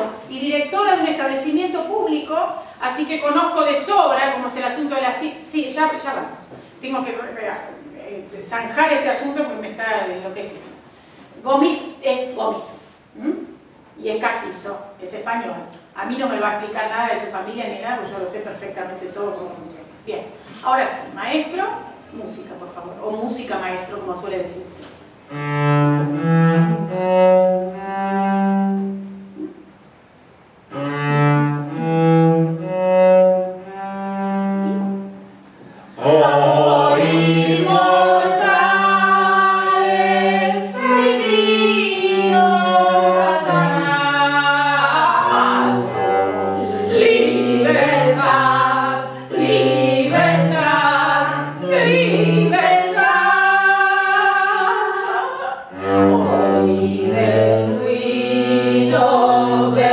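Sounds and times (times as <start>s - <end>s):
cello bowed notes: 25.2s - 29.7s, 30.6s - 59.9s
people singing: 35.9s - 59.9s.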